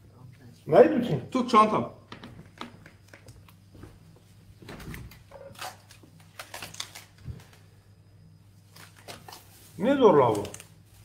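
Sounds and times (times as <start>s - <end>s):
steady low hum: 0.0s - 11.0s
lettuce leaves rustling and crackling: 5.6s - 7.5s, 8.6s - 11.0s.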